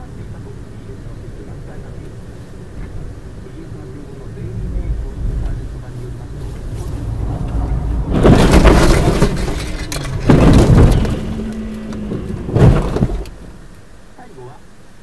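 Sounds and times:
low rumble of car: 0.0s - 15.0s
car crash impacts with crunching: 6.6s - 13.7s.

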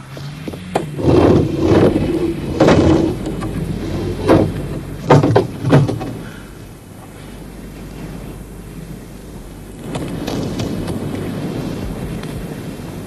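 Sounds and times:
car engine humming: 0.0s - 13.0s.

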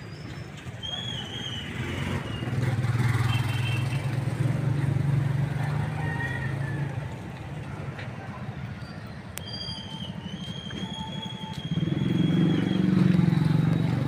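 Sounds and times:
vehicle engine passing by: 11.4s - 14.0s.

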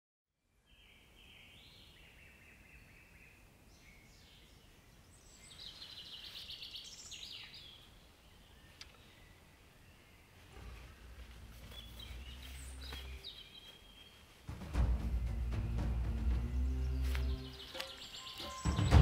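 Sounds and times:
small birds calling: 0.6s - 19.0s
bird call of rapid notes: 14.5s - 19.0s.

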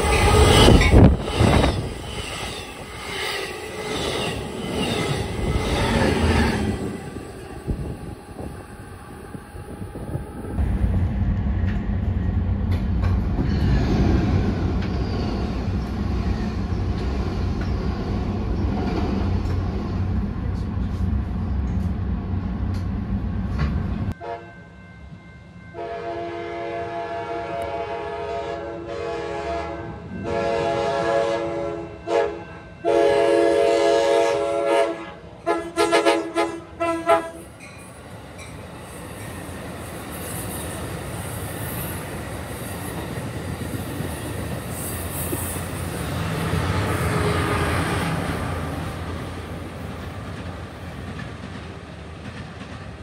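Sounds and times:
passing train low rumble: 0.0s - 53.0s
train rumble and rail hiss: 0.0s - 53.0s
train air horn blasts: 24.1s - 24.7s, 25.7s - 37.5s.

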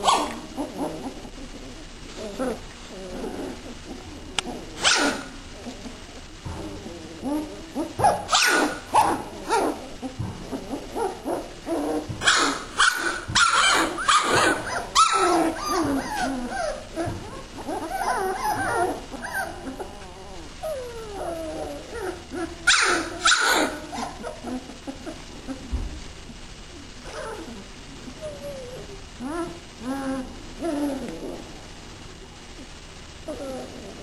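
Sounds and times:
puppies whimpering and yipping: 0.0s - 25.7s, 27.1s - 31.4s
puppies yelping: 0.0s - 25.7s.

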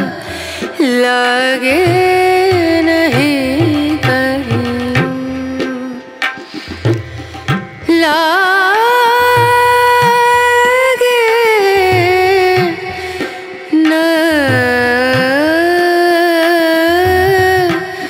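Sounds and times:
drum beat: 1.8s - 8.0s.

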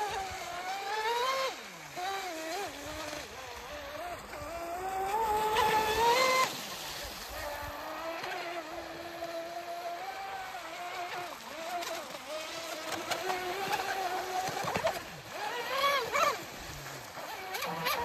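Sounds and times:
speedboat electric motor whine: 0.0s - 18.0s.

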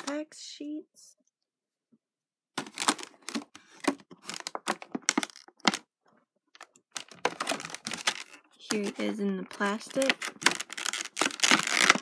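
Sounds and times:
plastic packaging crackling: 2.6s - 5.9s, 6.5s - 12.0s.

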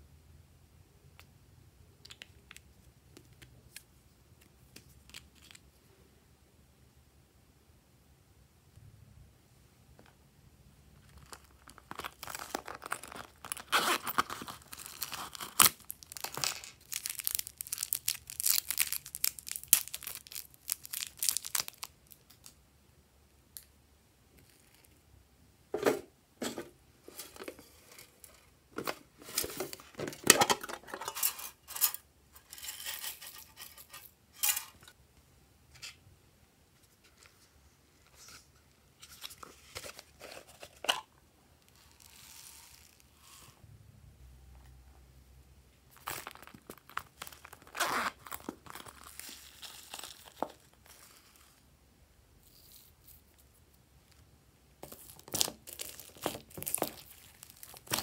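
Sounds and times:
plastic packet crinkling: 11.0s - 22.5s, 45.9s - 51.3s, 54.8s - 58.0s.

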